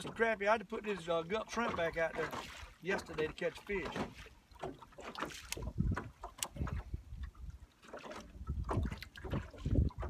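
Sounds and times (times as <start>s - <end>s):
waves slapping boat hull: 0.0s - 10.0s
wind buffeting microphone: 5.4s - 10.0s.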